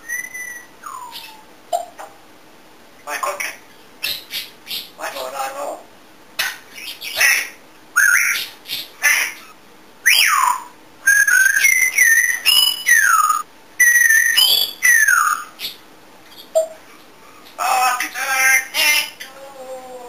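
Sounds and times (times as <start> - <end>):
parrot whistling: 0.0 - 1.4, 6.9 - 15.8.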